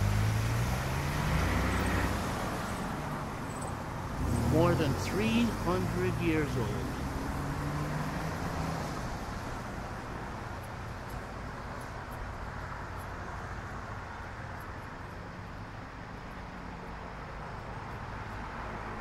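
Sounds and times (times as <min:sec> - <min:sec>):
car driving past: 0:00.0 - 0:10.6
road traffic noise: 0:00.0 - 0:19.0.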